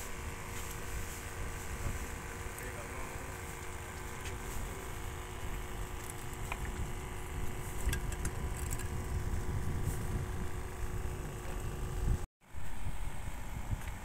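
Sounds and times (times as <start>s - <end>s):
wind buffeting microphone: 5.1s - 12.3s.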